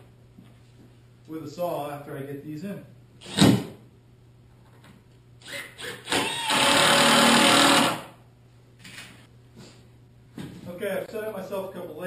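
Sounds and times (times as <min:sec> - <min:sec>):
power drill driving a screw: 0:05.4 - 0:08.1.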